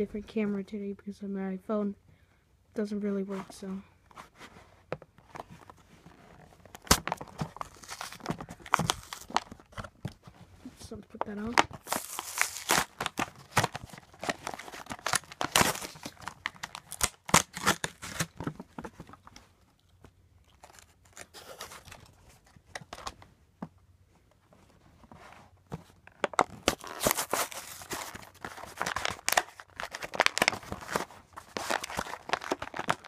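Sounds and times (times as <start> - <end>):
plastic packaging crinkling and tearing: 6.3 - 10.3, 11.2 - 23.2, 26.2 - 33.0.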